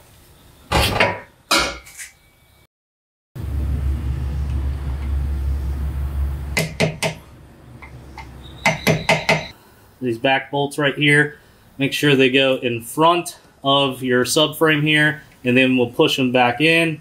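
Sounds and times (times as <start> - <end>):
steady low hum: 3.4 - 10.0
hammer striking metal punch: 6.6 - 7.2, 7.8 - 9.5.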